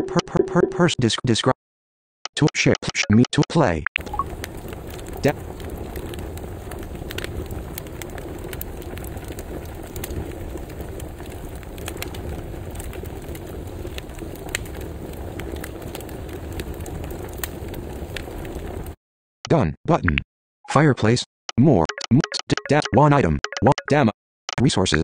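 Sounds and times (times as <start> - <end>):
fire burning: 4.0 - 19.0
fire crackling and popping: 4.0 - 19.0.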